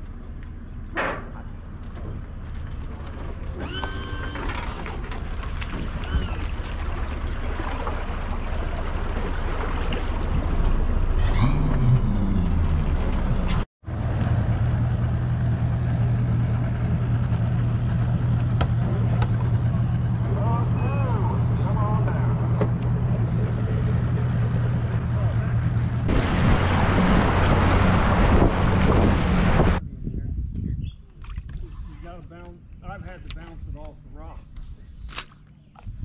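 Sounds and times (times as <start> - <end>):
outboard motor idling: 0.1 - 13.6, 15.0 - 29.8
outboard motor running: 1.4 - 13.6, 15.0 - 29.8.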